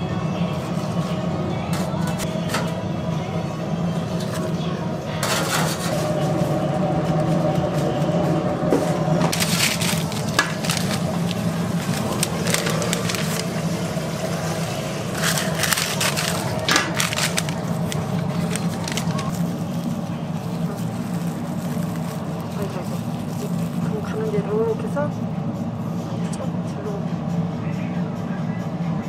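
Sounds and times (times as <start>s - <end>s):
steady low hum: 0.0s - 29.0s
paper bags crinkling: 9.3s - 24.3s.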